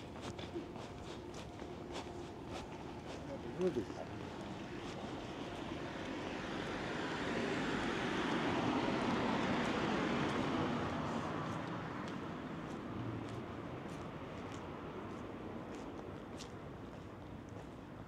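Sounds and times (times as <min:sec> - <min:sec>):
vehicle passing by: 0:02.9 - 0:14.8.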